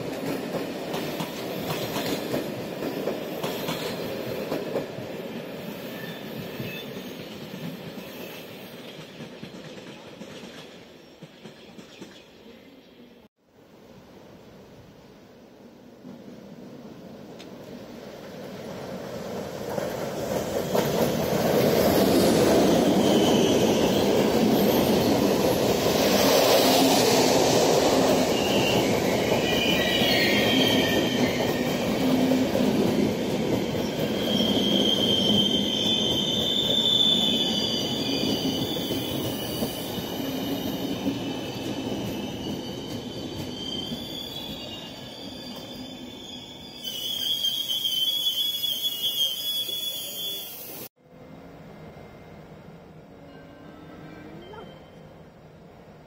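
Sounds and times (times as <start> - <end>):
train wheels rumbling on rail: 0.0 - 12.5, 15.9 - 50.9
wheels squealing: 33.6 - 50.9.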